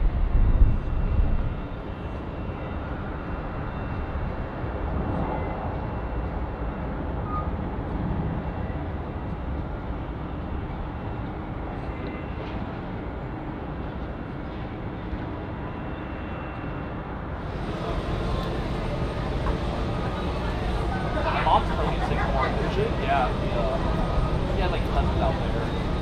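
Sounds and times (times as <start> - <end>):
faint high whine: 15.8 - 26.0
jet engines rumbling: 17.4 - 26.0.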